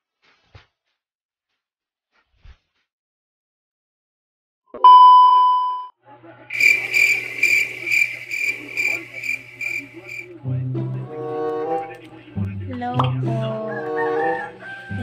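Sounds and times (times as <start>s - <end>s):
loud beep: 4.8s - 5.9s, 6.6s - 9.5s
cricket chirps: 6.5s - 10.3s.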